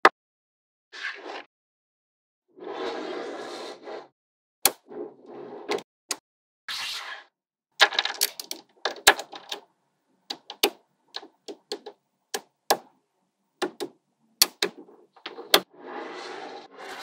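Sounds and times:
magnetic balls clicking together: 0:07.9 - 0:09.7.

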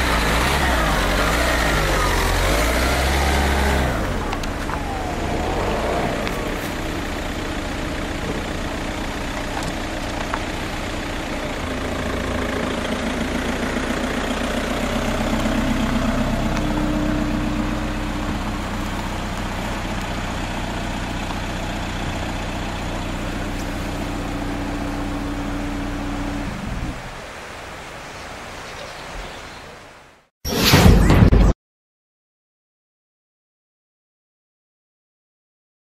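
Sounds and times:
vehicle engine running: 0:00.0 - 0:28.2.

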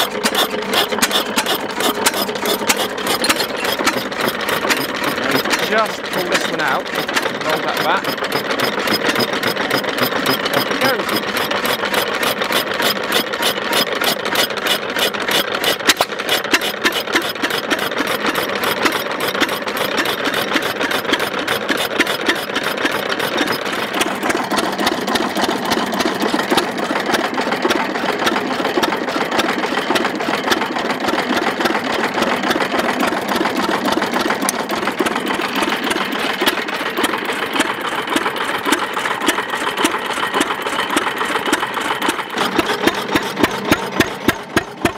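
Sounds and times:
stationary engine clattering: 0:00.0 - 0:44.9.

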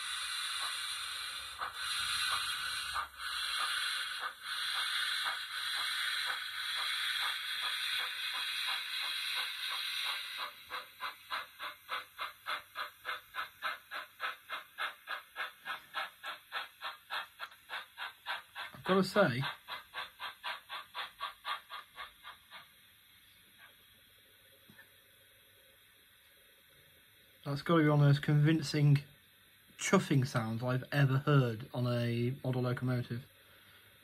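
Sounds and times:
steam locomotive chuffing: 0:00.0 - 0:23.8, 0:27.5 - 0:29.1, 0:29.8 - 0:34.0
steady steam hiss: 0:00.0 - 0:34.0.

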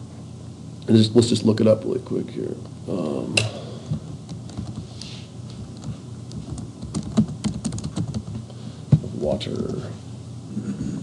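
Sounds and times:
keyboard typing: 0:04.3 - 0:04.9, 0:05.7 - 0:08.4.

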